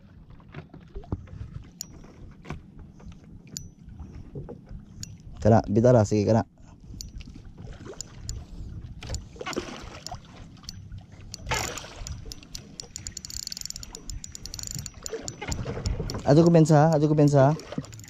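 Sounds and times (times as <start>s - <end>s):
boat low rumble: 0.0s - 18.0s
rapid ticking: 11.3s - 17.1s.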